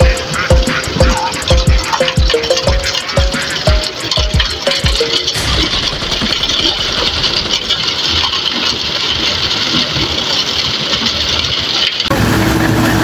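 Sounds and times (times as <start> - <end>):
truck engine running: 0.0 - 9.6
wet concrete sliding down chute: 0.0 - 13.0
steady engine hum: 12.1 - 13.0.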